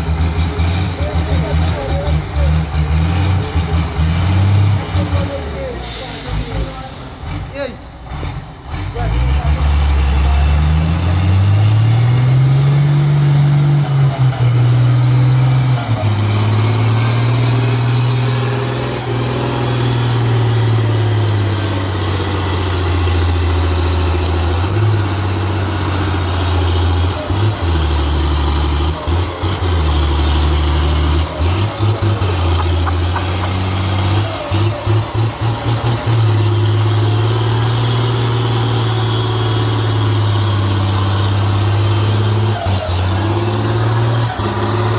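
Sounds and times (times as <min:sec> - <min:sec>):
diesel truck engine revving: 0:00.0 - 0:44.9.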